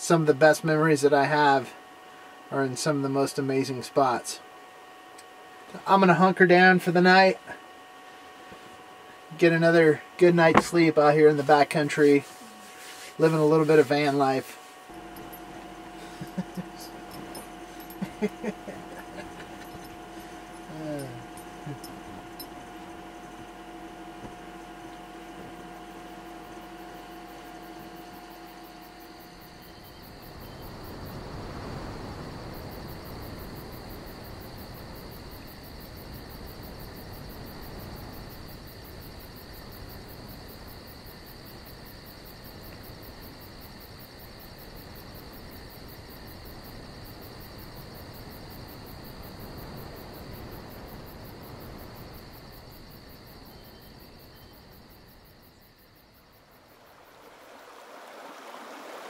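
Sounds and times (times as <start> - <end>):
crickets chirping: 0.0 - 59.0
creek running: 56.2 - 59.0.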